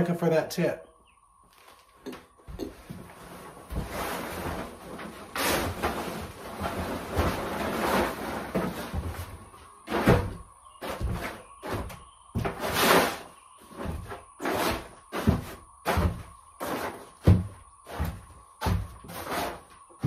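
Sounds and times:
tarp flapping: 3.2s - 9.3s.

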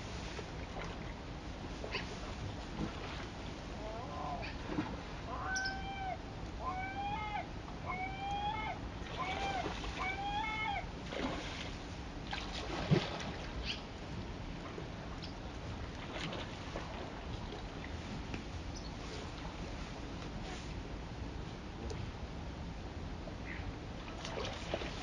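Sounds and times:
animal calling: 5.3s - 10.9s.

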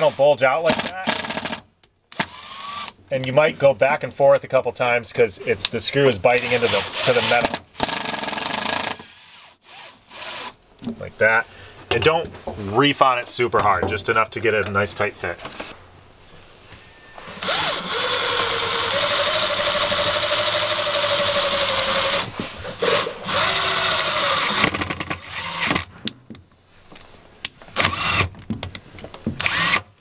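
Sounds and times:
drill motor whine: 16.9s - 24.7s, 29.4s - 29.8s.

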